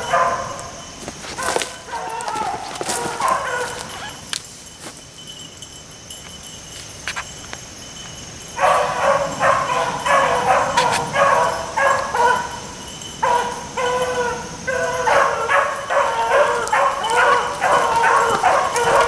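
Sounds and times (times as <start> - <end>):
beagles baying: 0.0 - 4.3, 8.5 - 19.0.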